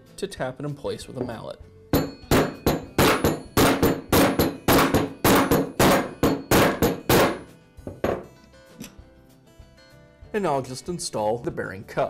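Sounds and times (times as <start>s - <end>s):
mallet striking steel socket: 2.0s - 9.0s.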